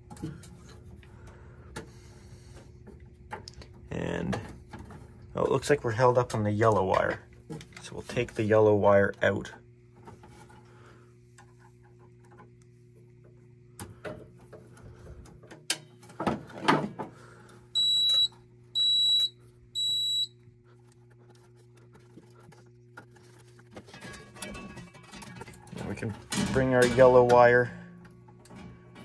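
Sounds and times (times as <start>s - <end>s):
low steady hum: 0.0s - 29.0s
alarm panel beeping: 17.8s - 20.3s.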